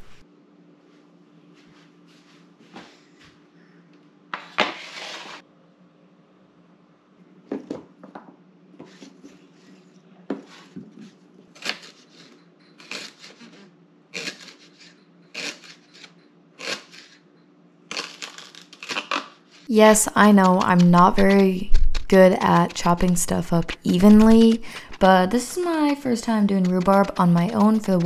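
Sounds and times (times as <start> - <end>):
knife chopping on cutting board: 20.3 - 28.0.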